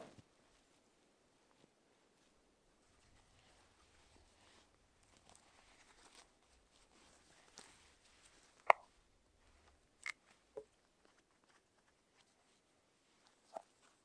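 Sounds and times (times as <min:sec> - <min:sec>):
tent fabric rustling: 0:00.0 - 0:08.6.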